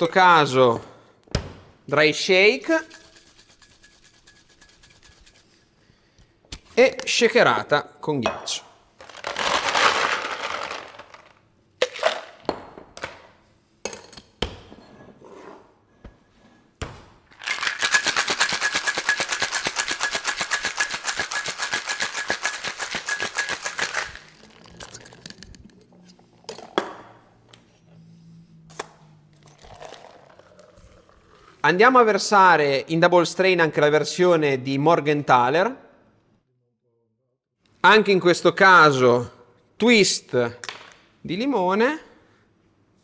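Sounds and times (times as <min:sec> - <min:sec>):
ice rattling in cocktail shaker: 0:02.7 - 0:05.6, 0:09.0 - 0:12.2, 0:17.3 - 0:25.7, 0:29.4 - 0:31.1
shaker clinks and knocks: 0:02.8 - 0:05.6, 0:17.4 - 0:25.6.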